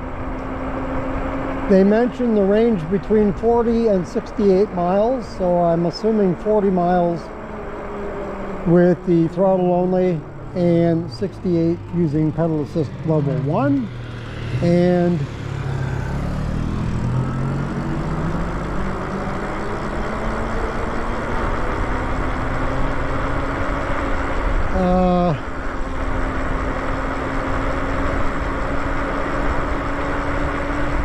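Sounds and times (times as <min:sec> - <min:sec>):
electric motor whine: 0:12.4 - 0:31.0.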